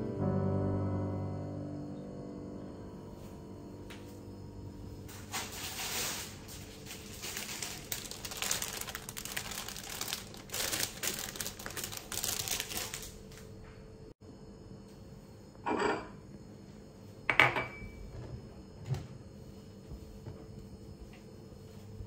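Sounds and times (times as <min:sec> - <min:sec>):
plastic bag crinkling: 0:05.1 - 0:13.5.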